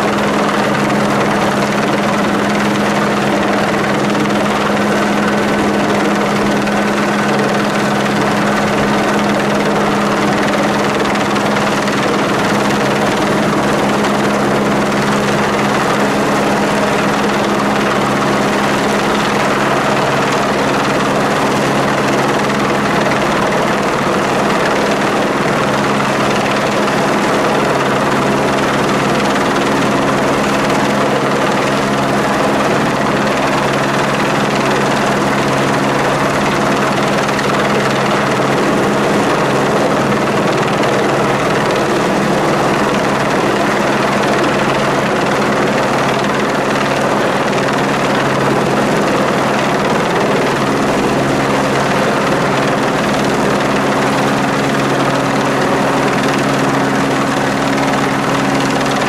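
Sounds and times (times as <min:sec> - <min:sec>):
helicopter rotor and engine hum: 0:00.0 - 0:59.0.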